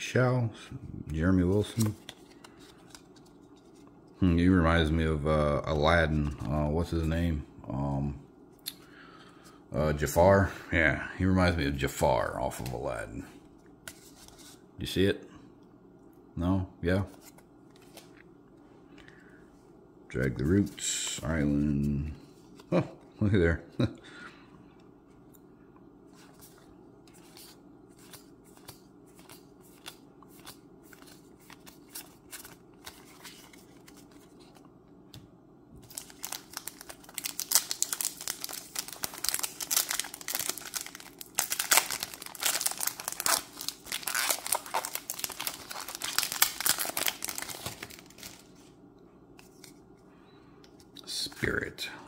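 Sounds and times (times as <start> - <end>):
foil wrapper crinkling and tearing: 35.8 - 48.5.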